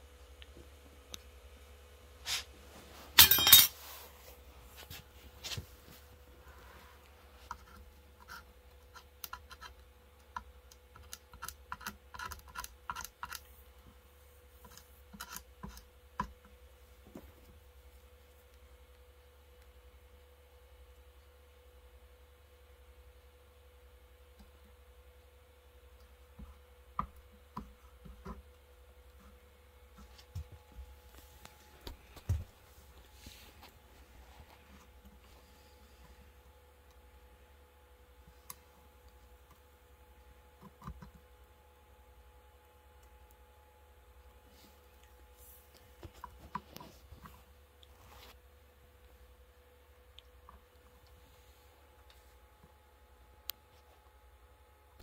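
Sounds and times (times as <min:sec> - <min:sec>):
faint steady hum: 0:00.0 - 0:55.0.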